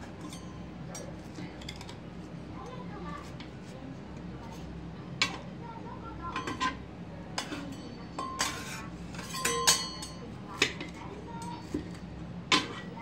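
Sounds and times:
metal spatulas clinking: 0.2 - 2.0, 7.4 - 11.8
spatulas scraping on griddle: 7.4 - 9.7.

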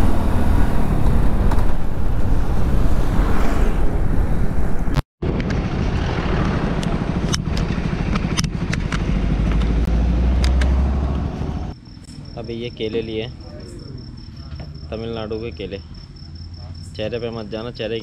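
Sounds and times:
wind rushing over microphone: 0.0 - 9.5
motorcycle engine drone: 0.0 - 15.5.

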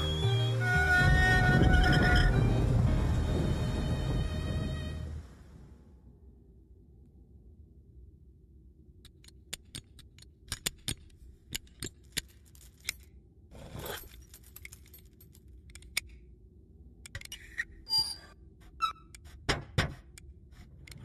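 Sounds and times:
low steady rumble: 0.0 - 17.1
metallic clicks and clinks: 9.0 - 16.3.

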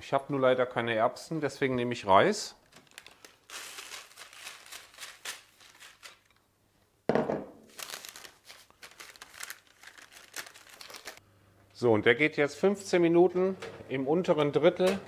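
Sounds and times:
baking paper crinkling: 2.6 - 6.4, 7.7 - 11.2
loud knock: 7.1 - 7.6.

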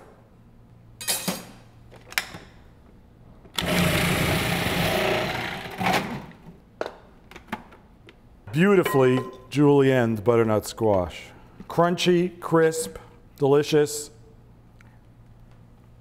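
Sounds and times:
food processor shredding: 3.6 - 6.4.

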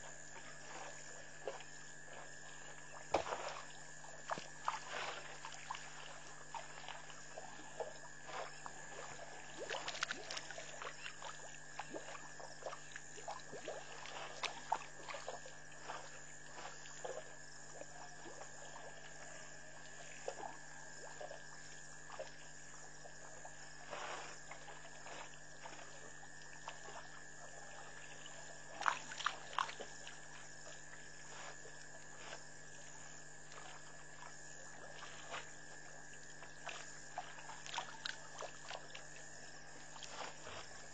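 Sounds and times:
steady low hum: 0.0 - 40.9
water splashing and dripping: 0.6 - 19.1, 26.4 - 32.8, 33.5 - 39.2.

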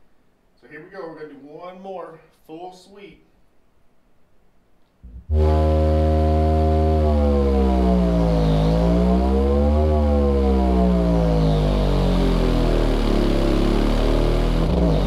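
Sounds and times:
subwoofer frequency sweep: 5.0 - 15.0.

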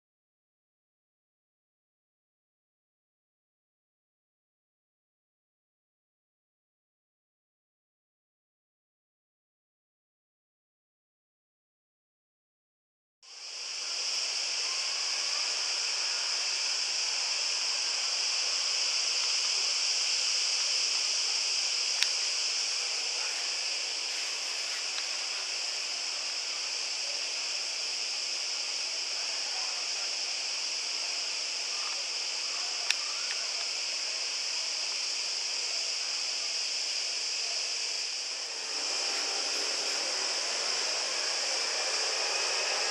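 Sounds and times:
steady hiss: 13.3 - 42.9.

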